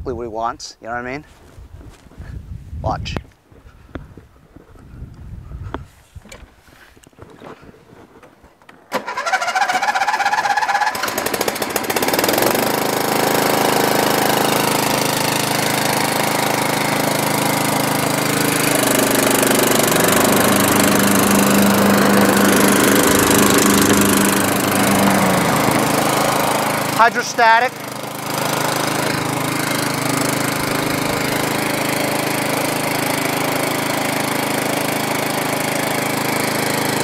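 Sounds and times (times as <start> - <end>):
lawn tractor engine running: 7.2 - 37.0
electric starter cranking: 8.7 - 37.0.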